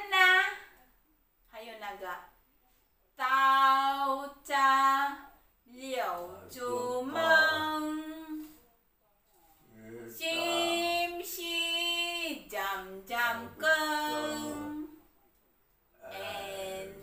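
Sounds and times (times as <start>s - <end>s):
woman singing unaccompanied: 3.2s - 8.5s, 10.1s - 15.0s, 16.1s - 17.0s.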